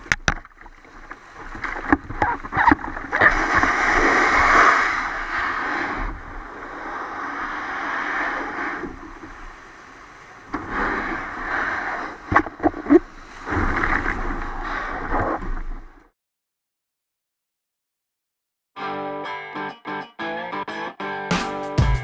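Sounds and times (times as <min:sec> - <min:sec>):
surf washing in shallows: 0:00.0 - 0:16.0.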